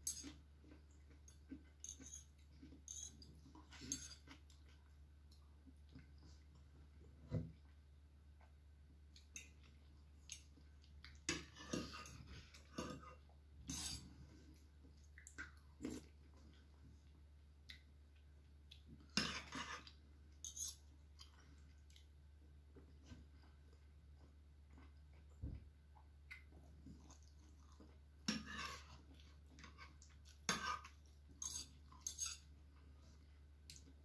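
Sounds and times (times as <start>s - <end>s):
cutlery clinking against bowl: 0.0s - 0.4s, 1.3s - 4.3s, 11.3s - 14.0s, 19.1s - 20.8s, 30.4s - 32.5s
chewing food: 0.1s - 7.0s, 8.4s - 34.0s.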